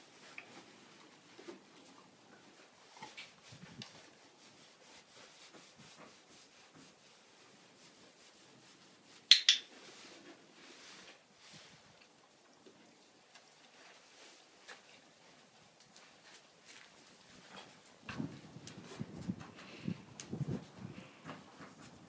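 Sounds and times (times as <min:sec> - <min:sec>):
saddle rubbing and clicking: 0:00.0 - 0:07.1, 0:15.8 - 0:22.0
sharp clacks: 0:09.3 - 0:09.7.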